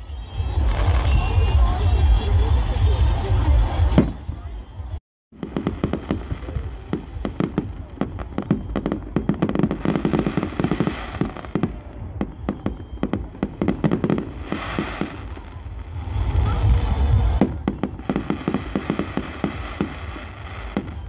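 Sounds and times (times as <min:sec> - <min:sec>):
fireworks crackling and banging: 0:00.4 - 0:21.0
low rumble: 0:15.4 - 0:18.3.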